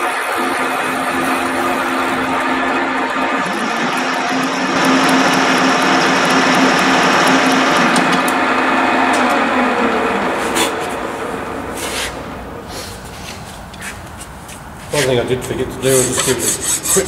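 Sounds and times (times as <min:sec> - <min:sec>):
milling machine cutting metal: 0:00.0 - 0:12.7.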